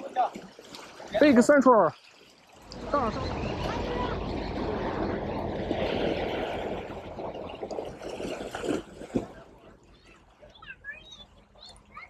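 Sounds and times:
sea water splashing on rocks: 0.0s - 9.6s.

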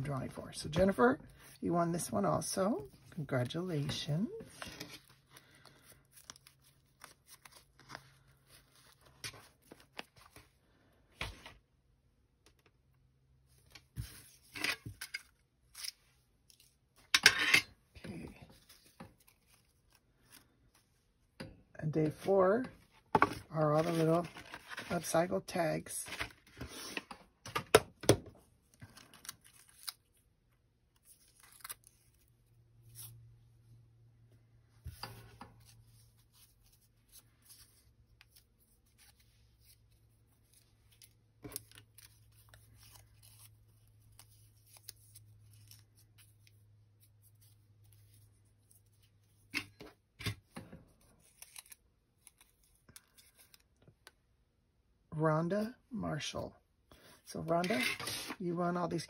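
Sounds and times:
paper rustling: 3.8s - 10.5s, 23.0s - 25.2s, 26.0s - 27.1s.

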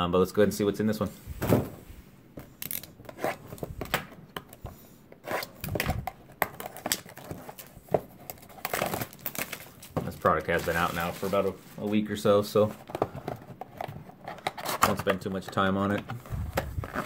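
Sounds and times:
plastic shrink-wrap tearing: 8.3s - 11.6s.

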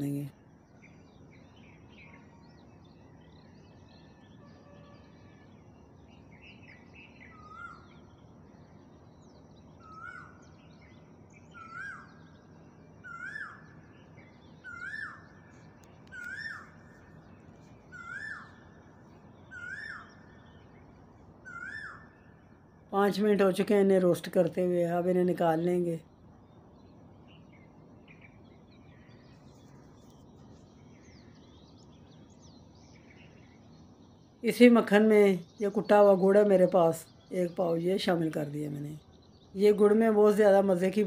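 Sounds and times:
soft bird chirps: 0.0s - 41.0s
bird calling rising note: 14.6s - 17.0s, 17.9s - 18.8s, 19.5s - 20.7s, 21.4s - 22.3s.

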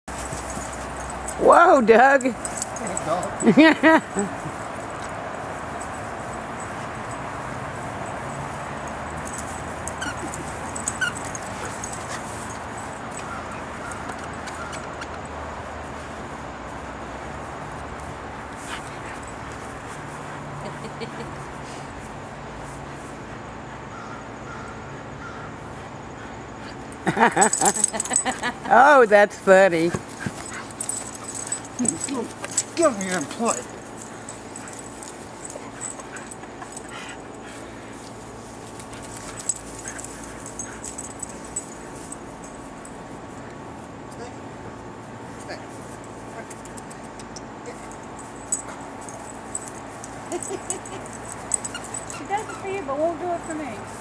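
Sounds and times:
continuous rumble and hiss: 0.1s - 54.0s
dog whining and yipping: 9.2s - 12.2s, 49.2s - 52.7s.

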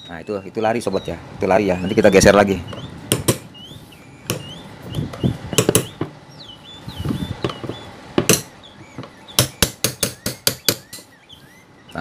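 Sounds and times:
hammer tapping metal: 3.1s - 3.5s, 4.2s - 4.5s, 5.5s - 6.2s, 7.4s - 11.1s.

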